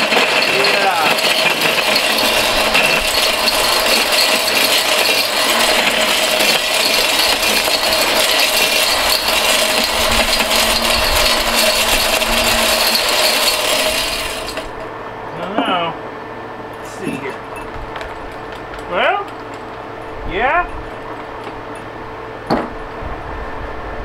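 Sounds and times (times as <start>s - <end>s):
drill motor tone: 0.0s - 14.8s
metallic rattling and clattering: 0.0s - 14.9s, 17.2s - 19.9s.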